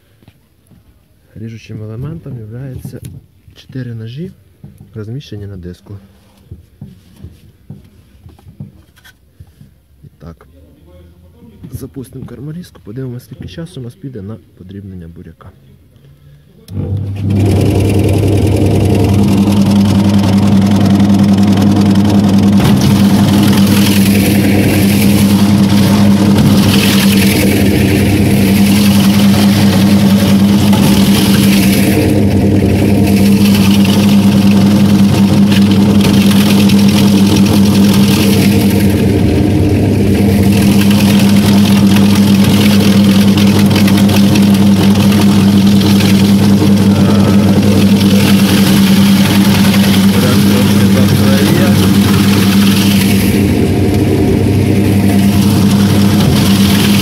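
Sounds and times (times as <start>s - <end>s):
electric motor humming: 16.7s - 57.0s
vegetables being shredded: 16.7s - 57.0s.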